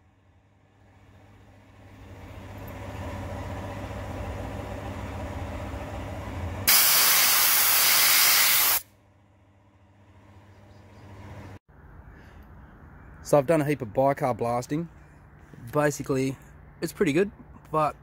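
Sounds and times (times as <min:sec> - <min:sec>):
air compressor rumbling: 0:00.8 - 0:08.8
compressed air blast hissing: 0:06.7 - 0:08.8.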